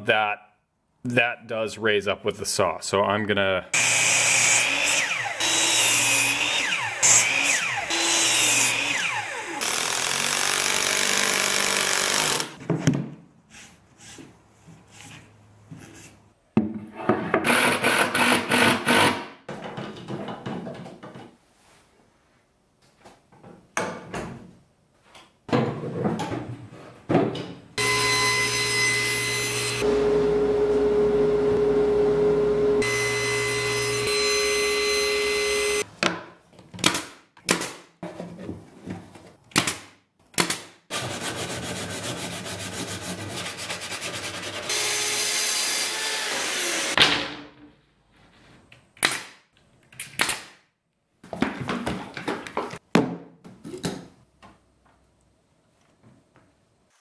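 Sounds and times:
woodworking power tool running: 3.8 - 12.6, 27.8 - 35.8
motor winding down whine: 5.0 - 5.7, 6.5 - 8.0, 8.7 - 9.6, 27.8 - 35.8.

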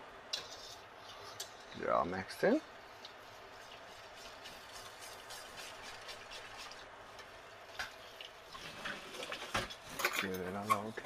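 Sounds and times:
whisk swishing in sauce: 2.8 - 6.9.

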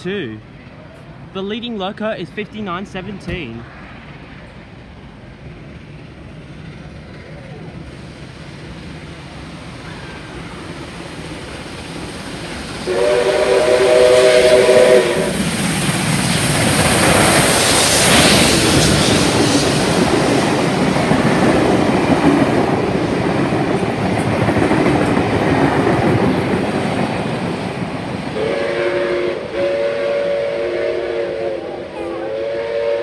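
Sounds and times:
train running past on rails: 0.0 - 33.0
steam locomotive whistle: 12.8 - 15.5, 28.4 - 33.0.

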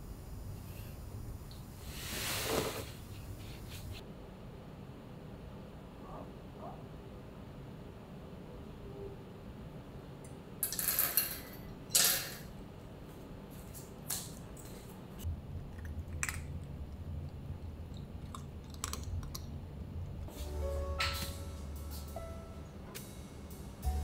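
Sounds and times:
cats crunching food: 15.6 - 19.7.

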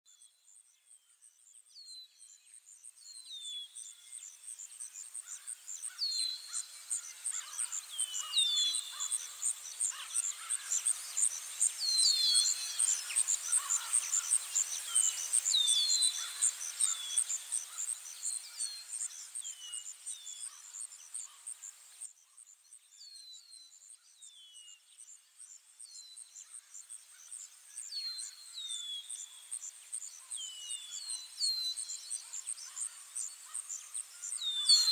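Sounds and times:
songbirds chirping: 0.1 - 34.9
background hiss: 0.7 - 23.0, 23.8 - 34.9
insect trill: 3.9 - 22.1, 26.4 - 34.9.

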